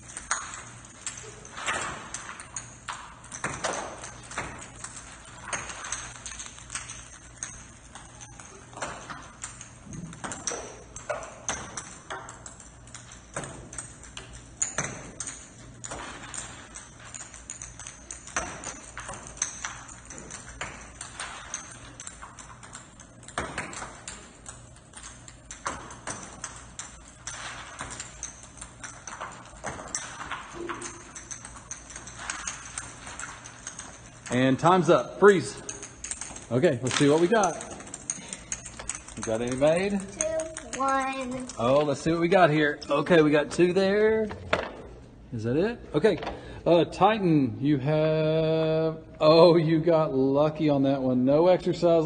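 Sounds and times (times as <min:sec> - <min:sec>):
plastic balls bouncing on tiled floor: 0:00.0 - 0:45.0.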